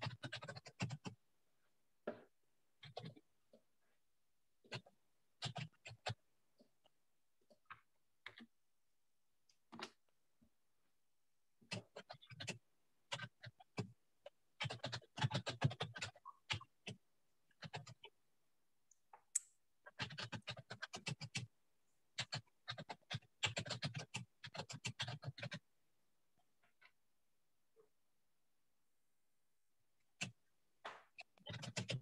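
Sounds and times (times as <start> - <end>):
typing on a keyboard: 0.0 - 1.2, 4.7 - 6.2, 14.6 - 17.0, 17.6 - 18.1, 19.9 - 21.5, 22.2 - 25.6, 31.2 - 32.0.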